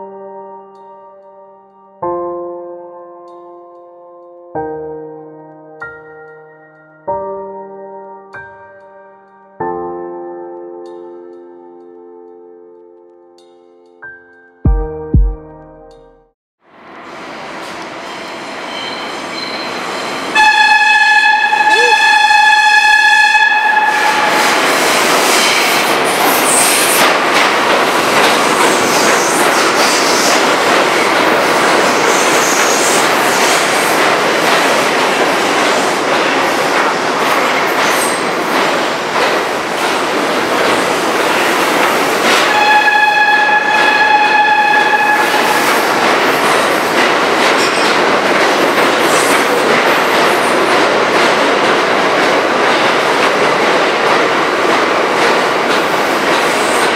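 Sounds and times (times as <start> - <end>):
subway wheels clattering on rails: 16.8 - 56.9
train horn: 20.3 - 24.6, 42.3 - 45.8.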